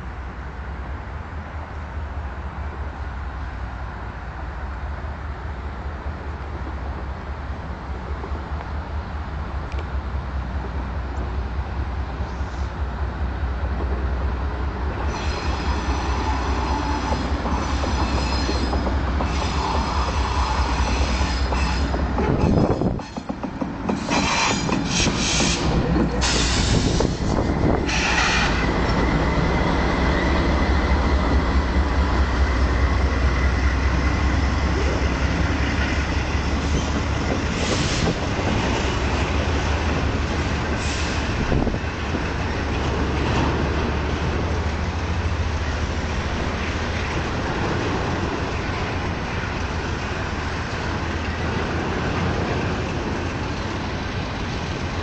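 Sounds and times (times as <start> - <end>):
freight train wheels rumbling: 0.0 - 55.0
train wheel squeal: 15.0 - 29.3, 35.8 - 38.3
short wheel screeches: 15.1 - 23.3, 23.9 - 28.7.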